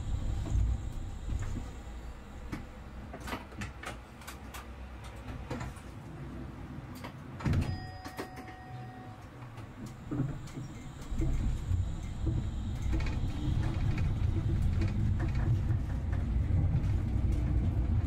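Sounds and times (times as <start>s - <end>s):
vehicle ride rumble: 0.0s - 7.8s, 8.8s - 18.0s.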